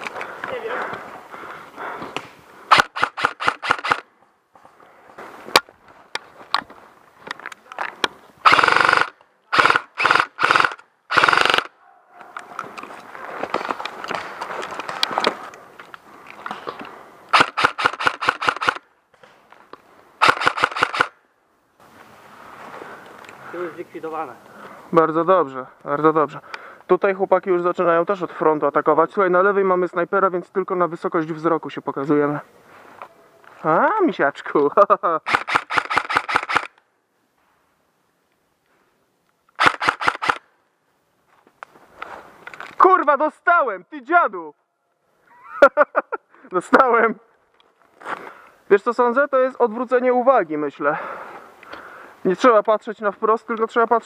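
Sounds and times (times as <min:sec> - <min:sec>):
airsoft rifle rapid shots: 0:02.7 - 0:04.0, 0:08.4 - 0:11.7, 0:17.3 - 0:18.8, 0:20.2 - 0:21.1, 0:35.3 - 0:36.7, 0:39.6 - 0:40.4.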